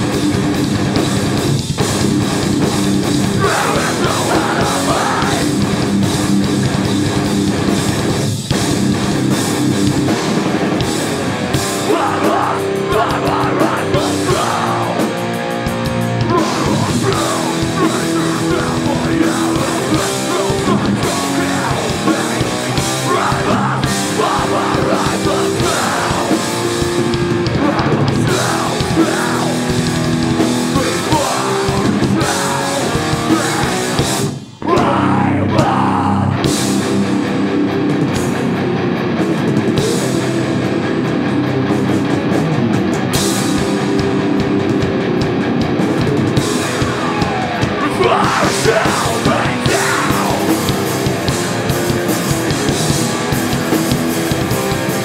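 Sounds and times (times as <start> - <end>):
punk band playing live: 0.0 - 55.0
shouted vocals: 3.3 - 5.6, 11.7 - 15.3, 16.2 - 26.7, 27.5 - 30.0, 30.6 - 36.5, 46.6 - 51.0.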